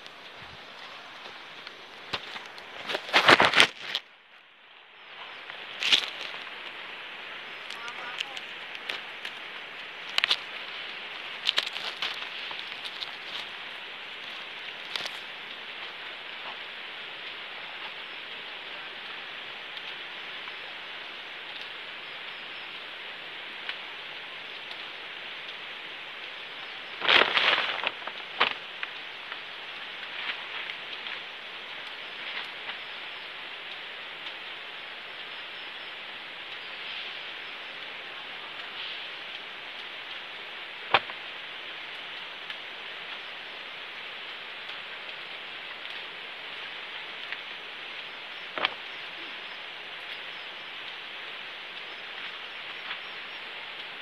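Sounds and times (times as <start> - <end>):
chilli plants rustling: 0.0 - 4.4, 5.0 - 16.0, 26.5 - 33.2
steady hiss: 0.0 - 54.0
faint small ticks: 7.6 - 18.0, 19.0 - 20.6, 21.5 - 22.8, 24.5 - 54.0.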